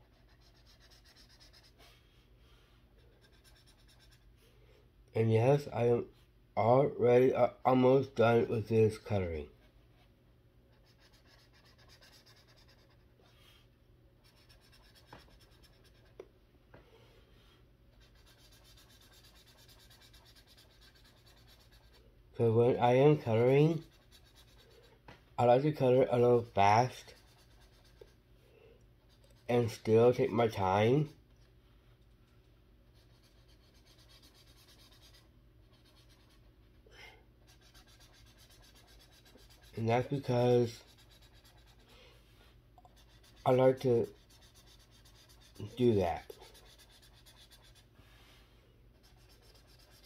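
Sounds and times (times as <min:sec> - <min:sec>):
marker scratching on paper: 0:00.0 - 0:02.0, 0:03.1 - 0:04.3, 0:10.7 - 0:13.6, 0:14.2 - 0:16.2, 0:17.9 - 0:22.0, 0:22.8 - 0:24.9, 0:25.5 - 0:28.2, 0:32.9 - 0:36.5, 0:37.4 - 0:41.9, 0:42.8 - 0:47.9, 0:49.0 - 0:50.0.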